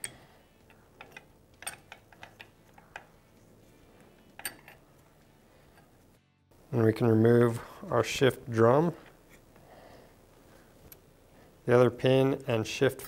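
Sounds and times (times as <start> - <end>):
metal gears clicking and clinking: 0.0 - 3.1, 4.4 - 4.8.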